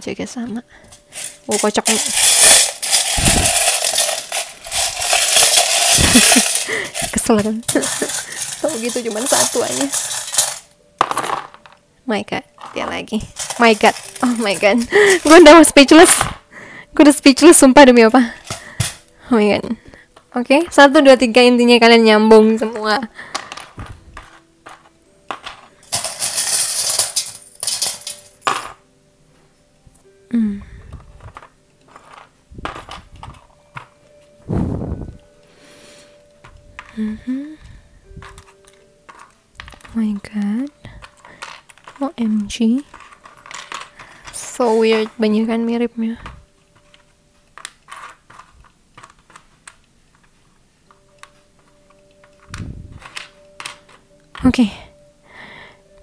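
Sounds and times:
metal charms and pebbles clinking: 0.7s - 11.8s, 12.5s - 28.8s, 30.7s - 35.2s, 35.8s - 55.0s
small charms clicking: 0.9s - 10.7s, 12.6s - 16.4s, 46.7s - 54.6s.

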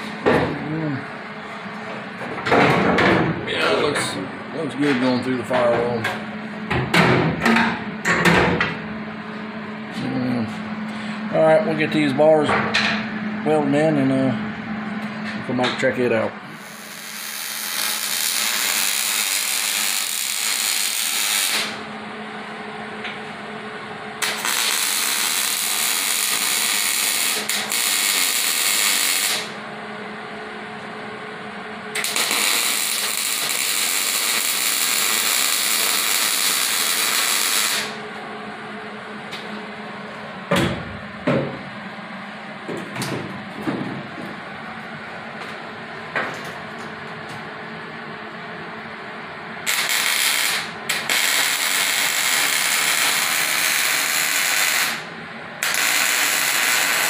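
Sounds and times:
steady low hum: 0.0s - 57.0s
welder sizzling crackle: 16.6s - 21.8s, 24.2s - 29.6s, 32.0s - 38.0s, 49.6s - 57.0s.

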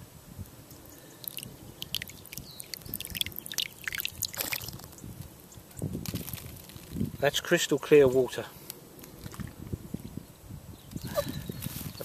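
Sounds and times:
water dripping into a palm: 0.9s - 5.0s.

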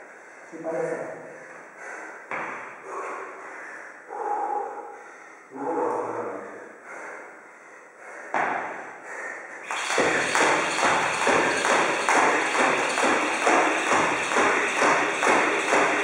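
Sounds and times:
person breathing: 0.0s - 9.9s
jump rope slapping the floor: 9.6s - 16.0s.

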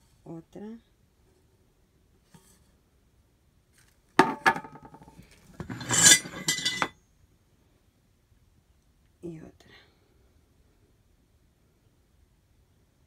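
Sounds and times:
ceramic flowerpots clinking: 4.2s - 7.0s.

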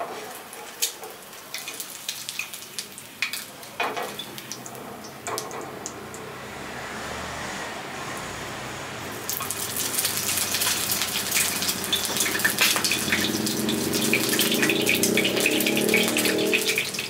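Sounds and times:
egg sizzling and popping in oil: 0.8s - 6.3s, 9.1s - 17.0s.

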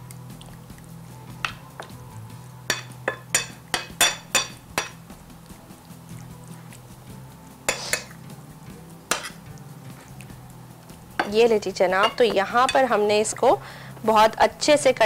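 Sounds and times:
spoon clinking on ceramic plate: 2.7s - 5.0s, 9.1s - 9.4s, 12.0s - 13.4s.

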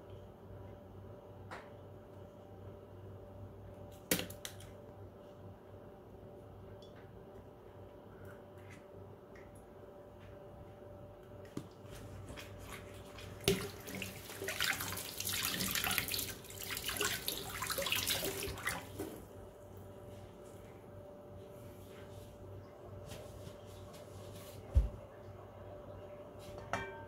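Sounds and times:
tap water running: 12.3s - 19.2s.

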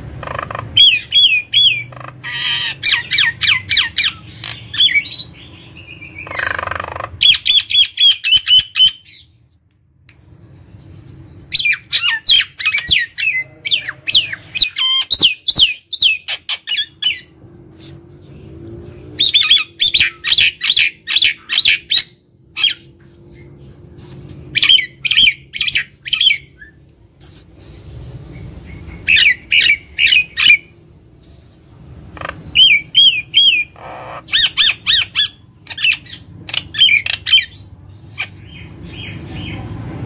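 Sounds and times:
bird harsh squawk: 0.2s - 9.2s, 29.0s - 30.7s, 32.1s - 39.6s
bird calling sharp repeated notes: 5.8s - 9.2s.

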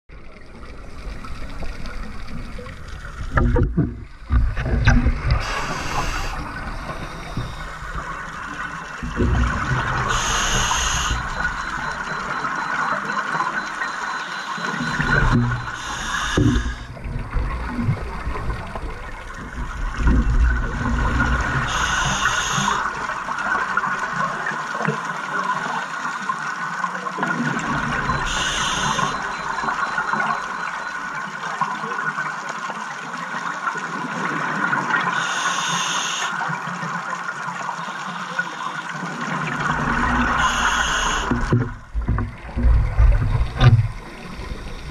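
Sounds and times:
regulator exhaust bubbles: 0.1s - 24.3s, 38.9s - 44.9s
underwater hiss and rumble: 0.1s - 31.3s, 32.7s - 44.9s
scuba diver breathing underwater: 5.4s - 8.3s, 10.0s - 12.2s, 15.6s - 16.9s, 20.9s - 22.9s, 28.3s - 29.3s, 35.1s - 36.4s, 40.3s - 41.5s.

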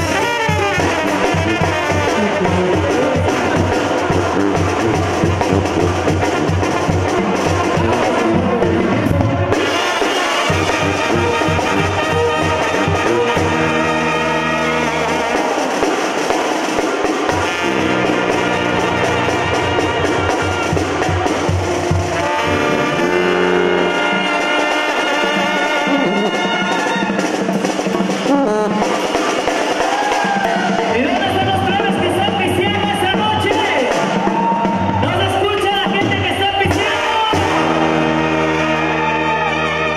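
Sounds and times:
bass drum with cymbal: 0.0s - 25.0s
brass section playing chords: 0.0s - 39.9s
snare drums beating fast: 0.0s - 39.9s.

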